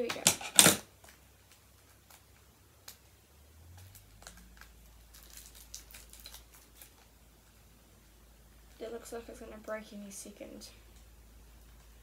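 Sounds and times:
plastic packaging crinkling: 3.7 - 7.6.

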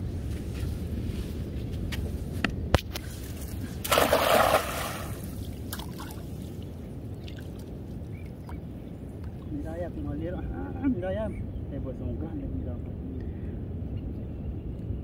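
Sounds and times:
net splashing into water: 3.8 - 6.3.

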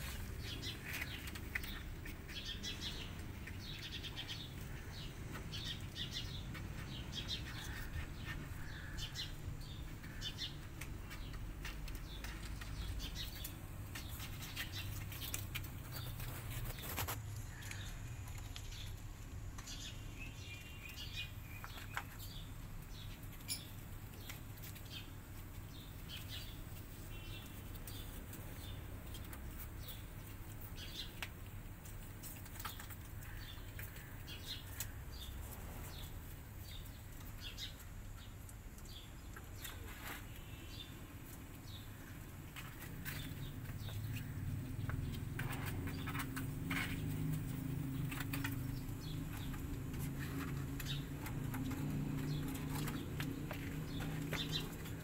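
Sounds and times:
cats moving on plastic sheet: 0.0 - 3.7, 4.4 - 20.0, 38.8 - 55.0
cats crunching dry kibble: 0.0 - 20.2, 21.5 - 55.0.

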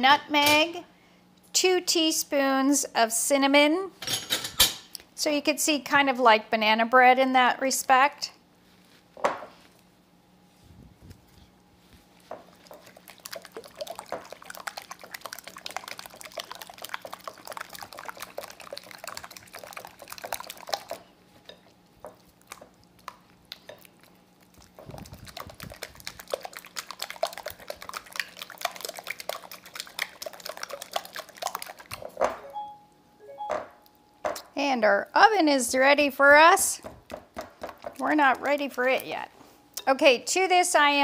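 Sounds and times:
spatula beating batter in bowl: 12.2 - 32.4, 36.6 - 39.1.

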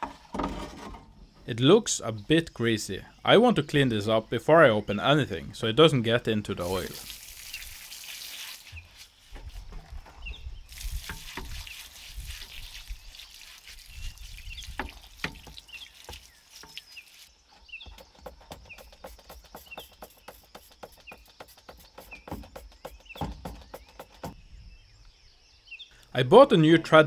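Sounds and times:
dripping: 6.5 - 10.0, 10.7 - 17.3
bird chirps: 12.8 - 26.2
dull knocks: 17.8 - 24.4.

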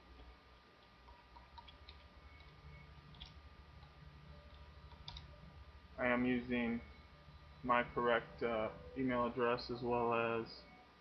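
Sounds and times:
low steady hum: 0.0 - 11.0
computer keyboard keystrokes: 1.0 - 5.3.

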